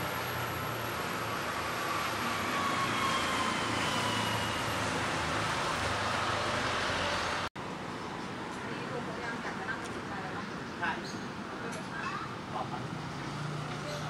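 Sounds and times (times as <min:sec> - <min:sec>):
passing vehicle whine: 0:00.0 - 0:07.5
city street traffic: 0:00.0 - 0:14.0.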